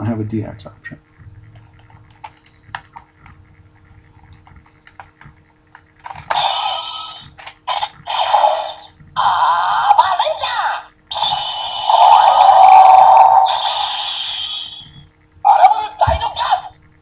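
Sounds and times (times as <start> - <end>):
toy electronic sound effects: 6.3 - 16.7.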